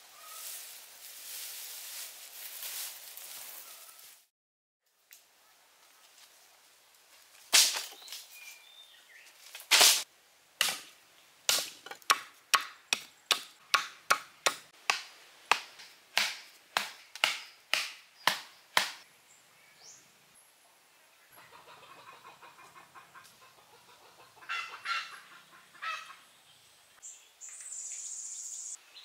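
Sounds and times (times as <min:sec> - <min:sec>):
machete chopping wooden poles: 0:07.5 - 0:08.2, 0:09.6 - 0:10.0, 0:10.6 - 0:19.0.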